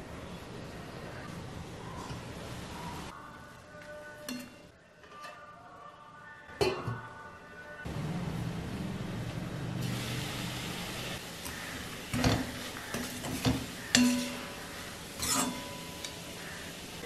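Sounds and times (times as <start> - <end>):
leaves sizzling in a pan: 9.8 - 17.0
metal spoon scraping and clinking: 12.9 - 14.5, 15.2 - 16.3.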